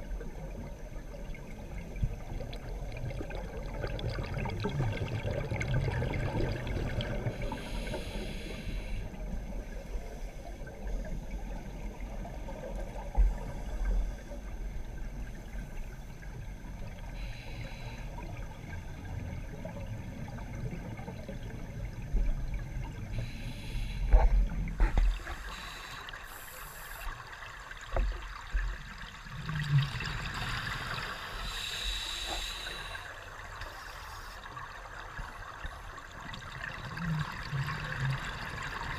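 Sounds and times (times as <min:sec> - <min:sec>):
exhaled bubbles from regulator: 0:00.0 - 0:09.8
low rumble of water: 0:00.0 - 0:38.9.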